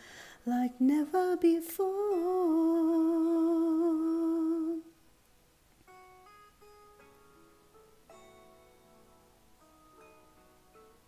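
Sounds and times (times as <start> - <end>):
woman singing long note: 0.5 - 4.9
plucked string instrument: 5.8 - 11.0.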